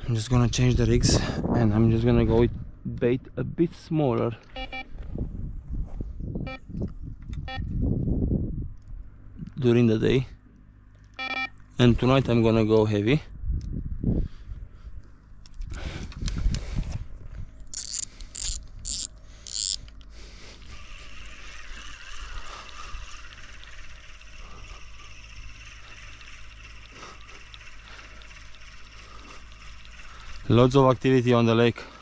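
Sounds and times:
faint lakeside background: 0:08.6 - 0:32.0
fishing rod and reel handled: 0:17.6 - 0:30.6
rasping reel clicks: 0:17.6 - 0:31.5.

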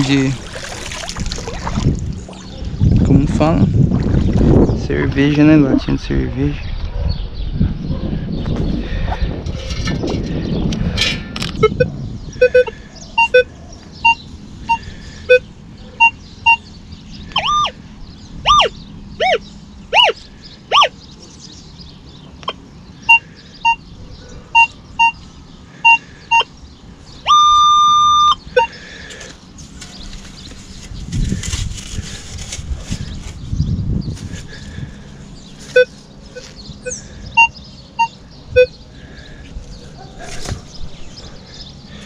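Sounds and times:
metal detector beeping: 0:11.6 - 0:15.4, 0:16.0 - 0:16.6, 0:17.4 - 0:17.8, 0:18.5 - 0:20.9, 0:23.1 - 0:23.8, 0:24.6 - 0:25.2, 0:25.8 - 0:26.5, 0:27.3 - 0:28.8, 0:35.7 - 0:36.0, 0:36.8 - 0:38.7.

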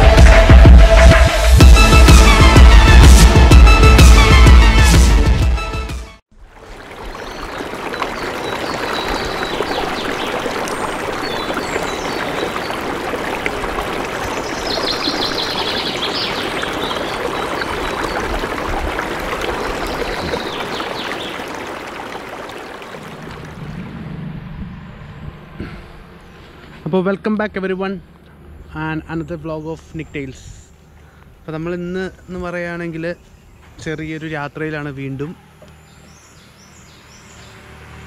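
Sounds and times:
river water rushing: 0:06.4 - 0:24.0.

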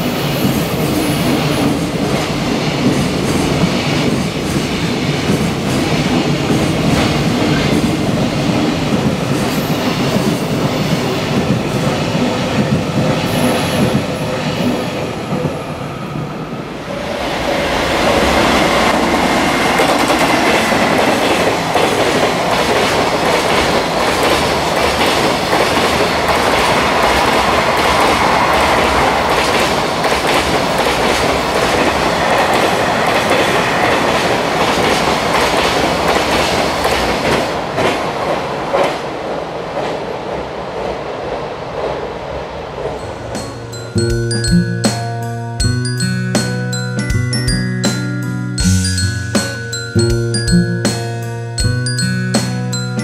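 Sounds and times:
freight train rumble: 0:00.0 - 0:53.0.

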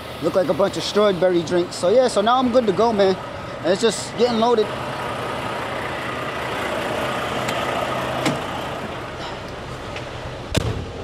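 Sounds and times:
diesel truck idling: 0:00.0 - 0:11.0.

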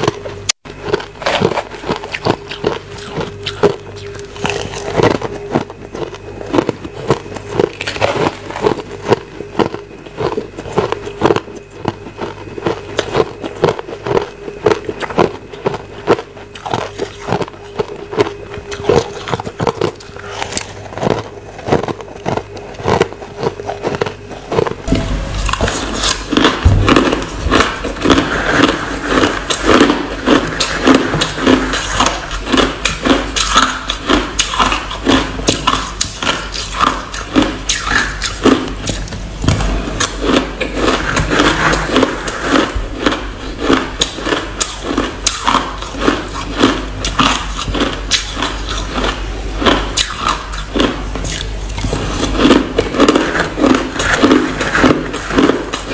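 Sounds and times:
low hum: 0:00.0 - 0:34.0
ice being chewed: 0:00.0 - 0:55.9.

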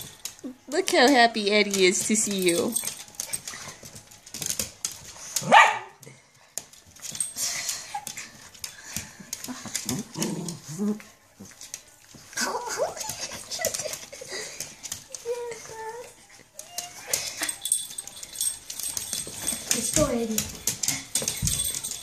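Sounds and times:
small dogs barking and yipping: 0:05.4 - 0:06.0.

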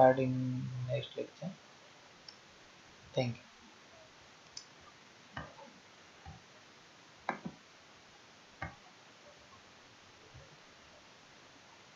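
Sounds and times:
faint steady hiss: 0:00.0 - 0:11.9.

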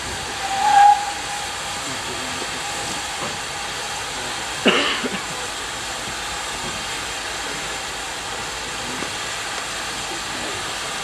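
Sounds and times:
loud sharp sound: 0:00.0 - 0:03.8
distant steam train running: 0:00.0 - 0:11.0
steady rushing hiss: 0:00.0 - 0:11.0.

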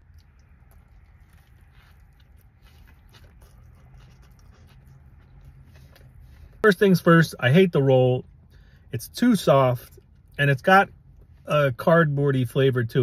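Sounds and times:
wet chewing mouth clicks: 0:00.0 - 0:06.5
low steady hum: 0:00.0 - 0:13.0.

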